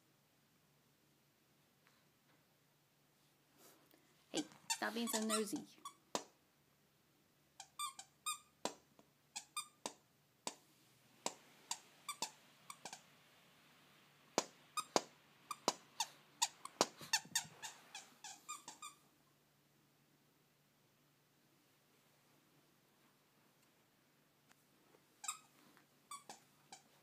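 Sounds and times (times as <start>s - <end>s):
squeaky toy squeaking: 4.4s - 6.0s, 7.6s - 8.6s, 9.4s - 9.8s, 11.7s - 13.0s, 14.8s - 19.0s, 25.2s - 25.5s, 26.1s - 27.0s.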